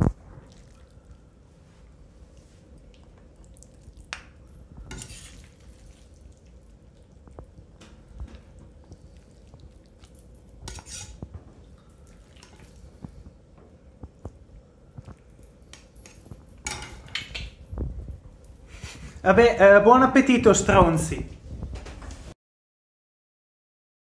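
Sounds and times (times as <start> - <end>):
cutlery clinking on ceramic: 4.1 - 6.0, 10.0 - 13.2, 15.6 - 17.6.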